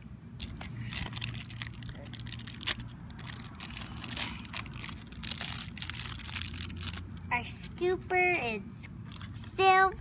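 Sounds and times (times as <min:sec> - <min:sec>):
plastic wrapper crinkling: 0:00.4 - 0:07.3, 0:09.0 - 0:09.4.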